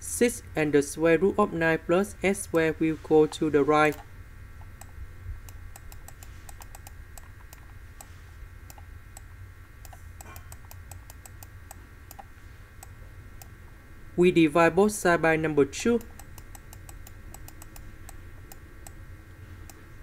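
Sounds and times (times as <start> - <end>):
steady low hum: 0.0 - 20.0
pen or mouse clicks: 5.7 - 7.7.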